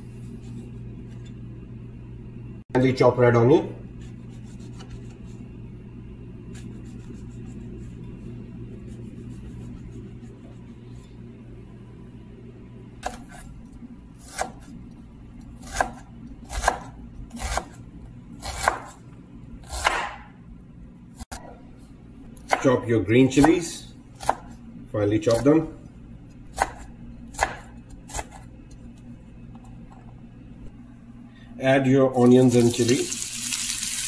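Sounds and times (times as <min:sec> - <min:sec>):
steady low hum: 0:00.0 - 0:33.0
knife chopping on cutting board: 0:13.0 - 0:13.5, 0:14.2 - 0:14.7, 0:15.6 - 0:17.8, 0:18.4 - 0:19.0, 0:19.6 - 0:20.3, 0:22.4 - 0:22.7, 0:24.2 - 0:24.5, 0:26.5 - 0:28.5.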